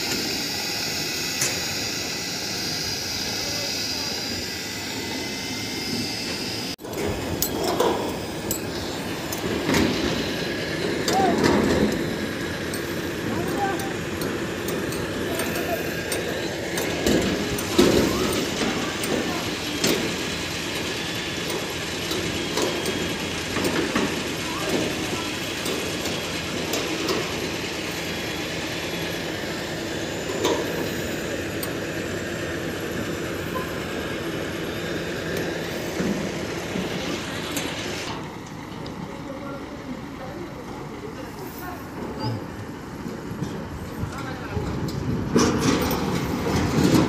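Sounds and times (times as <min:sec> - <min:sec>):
heavy machinery running: 0:00.0 - 0:47.0
metal clanks and knocks: 0:06.8 - 0:27.3, 0:44.2 - 0:47.0.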